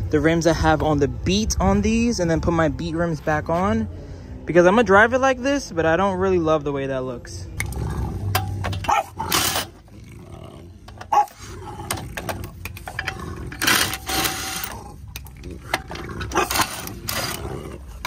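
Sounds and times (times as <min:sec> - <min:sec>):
impact wrench rattling bursts: 0:08.2 - 0:09.9, 0:10.8 - 0:18.0.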